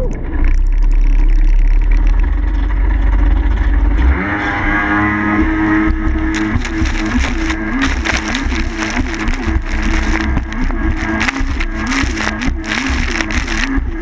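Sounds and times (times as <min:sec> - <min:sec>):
snowmobile engine running hard: 0:03.1 - 0:14.0.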